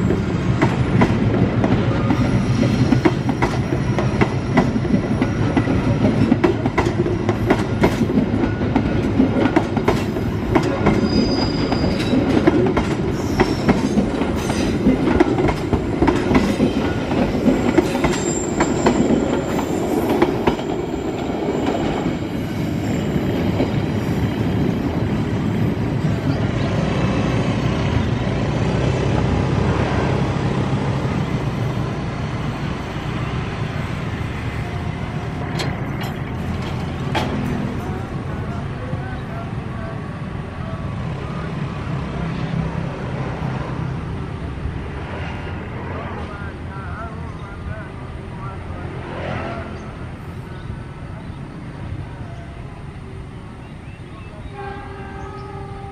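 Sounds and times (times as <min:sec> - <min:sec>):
train wheels clicking over rail joints: 0:00.1 - 0:22.0, 0:35.2 - 0:38.2
high wheel squeals: 0:10.9 - 0:12.3, 0:13.1 - 0:14.8, 0:16.8 - 0:24.0.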